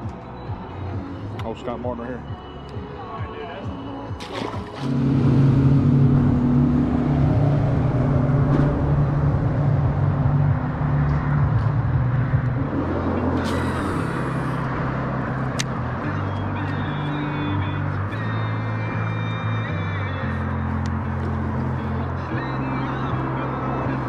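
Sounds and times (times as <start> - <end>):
outboard motor droning: 4.2 - 18.5.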